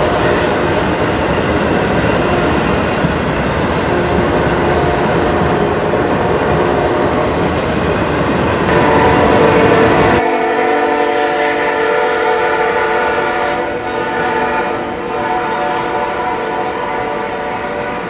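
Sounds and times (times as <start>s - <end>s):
train rumbling: 0.0s - 18.0s
locomotive air horn chord: 3.8s - 7.2s, 8.7s - 18.0s.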